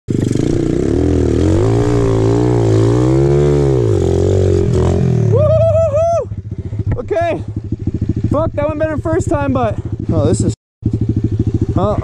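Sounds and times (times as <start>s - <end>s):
motorbike engine revving: 0.1s - 12.0s.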